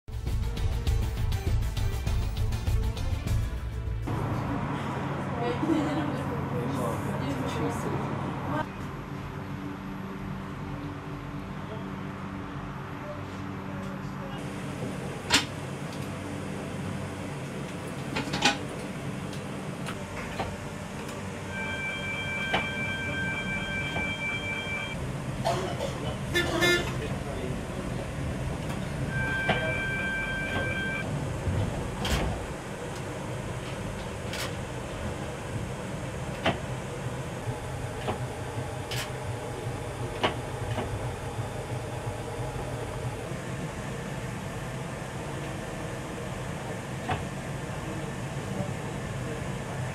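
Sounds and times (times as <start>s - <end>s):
electric tram humming: 0.2s - 49.9s
high-pitched tram warning horn: 21.4s - 25.0s, 26.2s - 27.1s, 29.1s - 31.1s.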